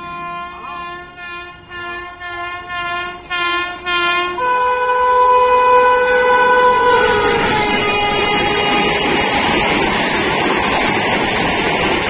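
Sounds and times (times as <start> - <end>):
train horn blasts: 0.0 - 9.6.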